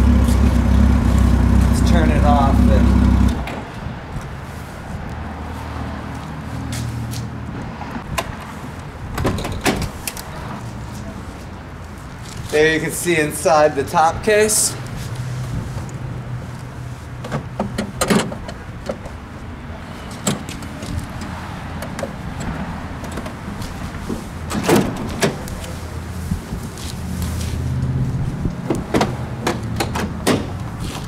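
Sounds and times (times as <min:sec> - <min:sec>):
steady low rumble: 0:00.0 - 0:05.3.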